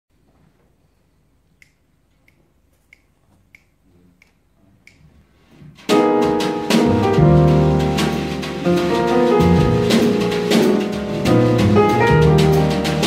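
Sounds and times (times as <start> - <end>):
finger snaps: 1.6 - 5.1
jazz trio playing: 5.7 - 13.0.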